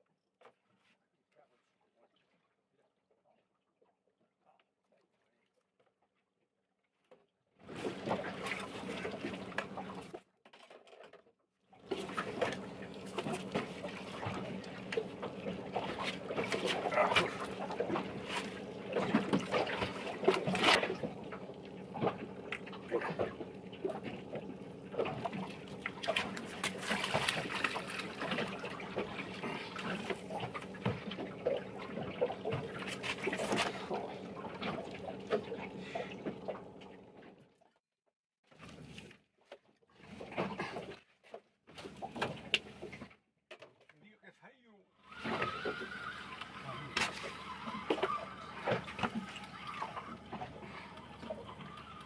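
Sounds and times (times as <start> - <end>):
water splashing and trickling: 7.6 - 11.1, 11.8 - 37.7, 45.0 - 52.0.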